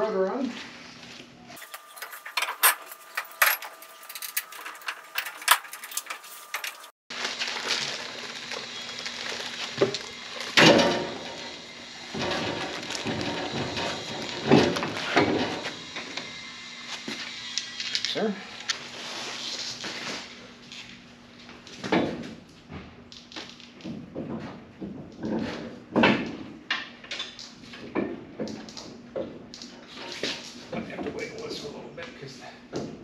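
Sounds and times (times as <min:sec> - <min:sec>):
metal tools clinking and knocking: 0:01.6 - 0:06.9.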